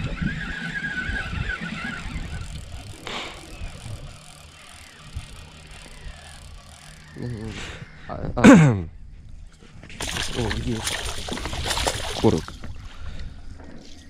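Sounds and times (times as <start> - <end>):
fishing reel whining and rattling: 0.0 - 7.8
low hum: 0.0 - 14.0.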